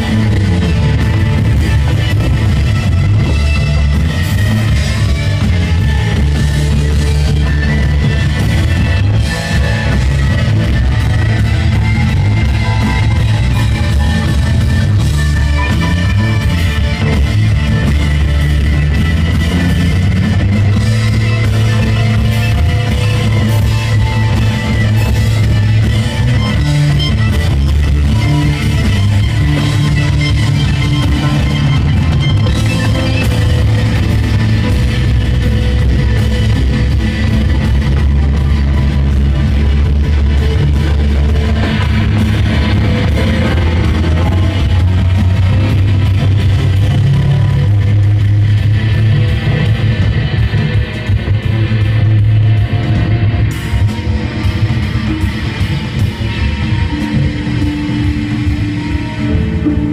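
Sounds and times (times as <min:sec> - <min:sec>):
rock band playing: 0:00.0 - 0:59.9.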